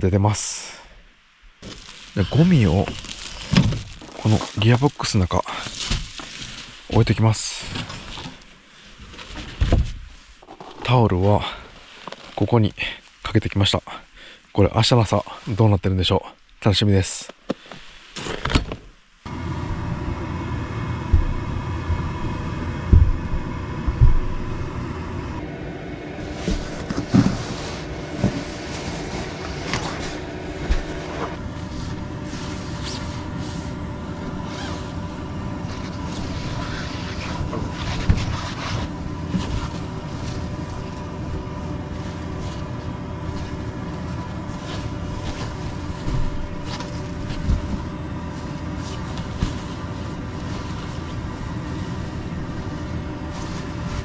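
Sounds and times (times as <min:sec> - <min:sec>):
steady mechanical hum: 0:00.0 - 0:54.0
nylon sleeping bag rustling: 0:01.6 - 0:10.5, 0:26.2 - 0:54.0
soft thumps: 0:22.9 - 0:24.5.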